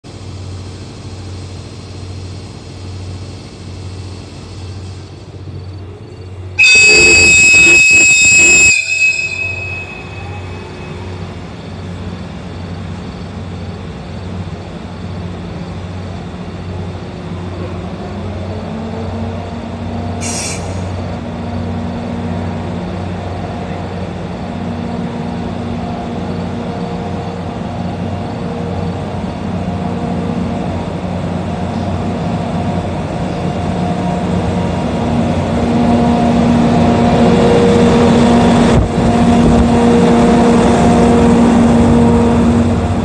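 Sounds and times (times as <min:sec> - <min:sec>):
electric locomotive humming: 0:00.0 - 0:43.0
high-pitched train whistle: 0:06.6 - 0:11.2.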